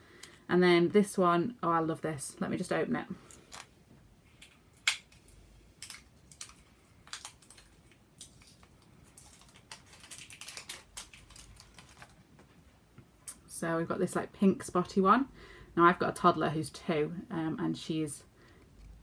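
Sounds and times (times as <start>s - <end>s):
plastic wrapping crackling: 5.8s - 12.5s.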